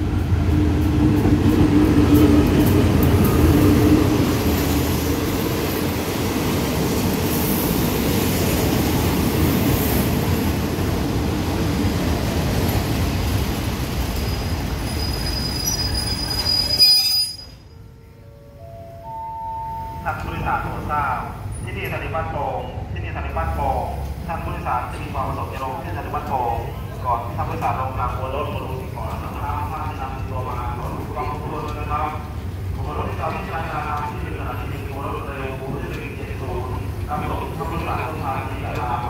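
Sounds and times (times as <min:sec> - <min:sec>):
diesel locomotive engine passing: 0:00.0 - 0:16.6
train wheels rumbling on rails: 0:00.0 - 0:17.0
high brake squeal: 0:14.3 - 0:17.8.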